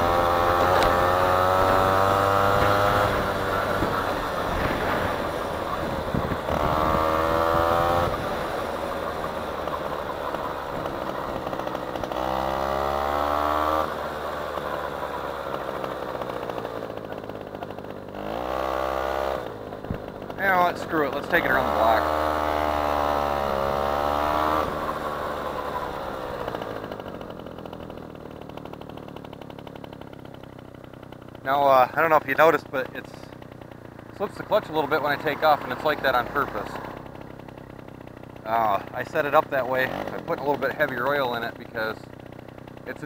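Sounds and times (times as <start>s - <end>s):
road and wind noise: 0.0s - 16.9s, 33.5s - 38.4s
scooter engine revving: 0.0s - 43.0s.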